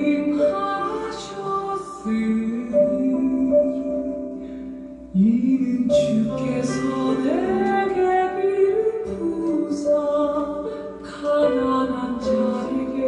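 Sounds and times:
person singing worship song: 0.0s - 13.0s.

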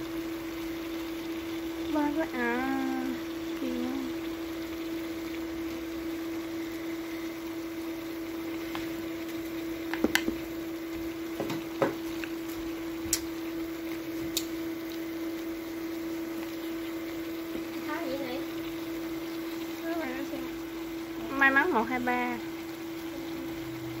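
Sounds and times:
cooktop hum: 0.0s - 24.0s
meat and onions sizzling in pan: 0.0s - 24.0s
chopsticks clicking against pan: 13.1s - 13.3s, 14.3s - 14.6s.

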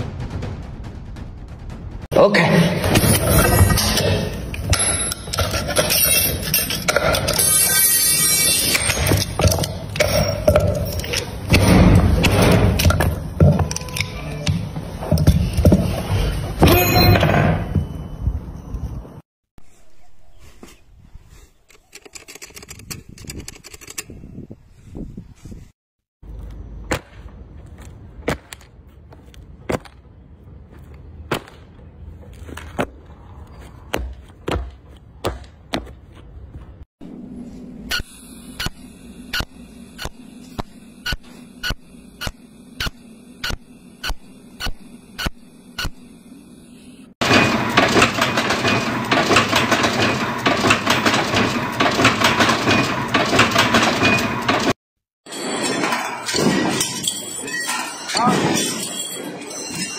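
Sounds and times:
weaving machine metallic clatter: 2.9s - 14.2s, 47.2s - 59.9s
high squeaks: 3.3s - 11.4s, 16.0s - 19.0s.

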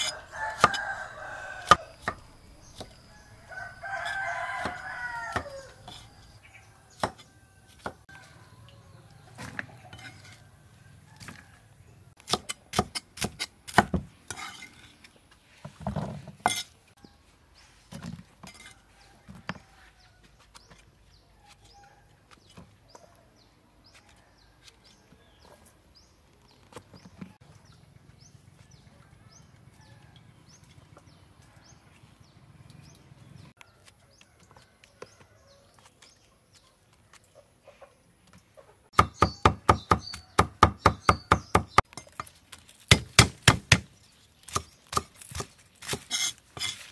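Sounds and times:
cleaver chopping on wooden board: 0.0s - 1.0s, 4.0s - 6.0s, 6.9s - 8.1s, 12.2s - 14.1s, 38.9s - 41.9s, 42.9s - 43.9s.

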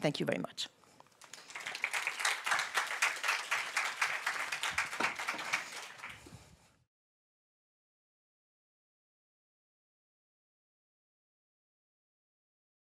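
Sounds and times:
audience applauding: 1.1s - 6.3s.

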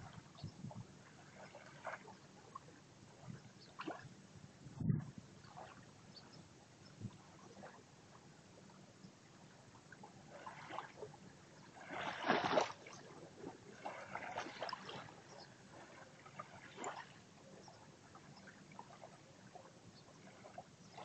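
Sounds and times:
waves lapping on sandy shore: 1.0s - 4.0s, 10.2s - 21.0s.

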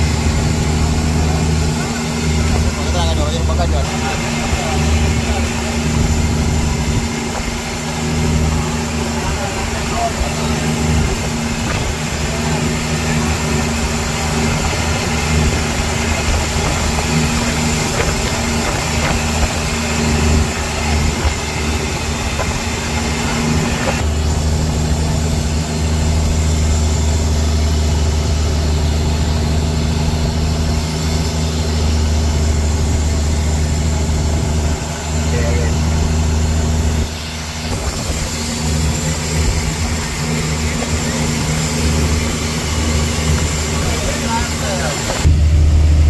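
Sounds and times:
boat engine humming: 0.0s - 46.0s.

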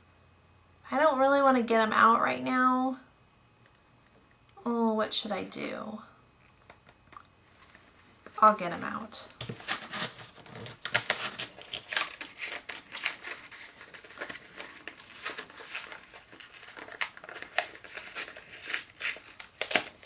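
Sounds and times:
plastic packaging crinkling: 9.3s - 20.0s
stiff paper rustling: 9.4s - 20.0s.

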